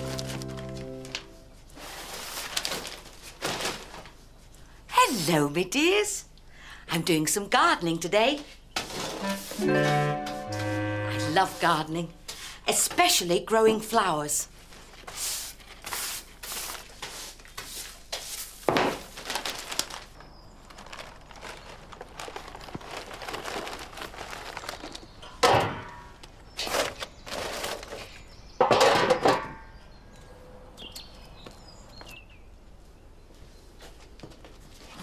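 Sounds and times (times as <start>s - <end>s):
debris swept into paper sack: 0.0s - 4.1s, 15.0s - 20.0s
thuds in metal dustbin: 28.6s - 29.7s.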